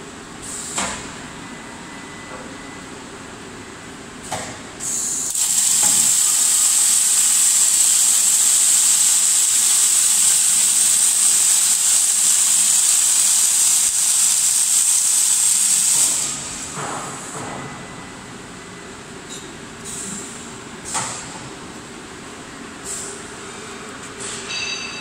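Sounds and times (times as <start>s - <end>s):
welding torches hissing: 5.3s - 16.8s.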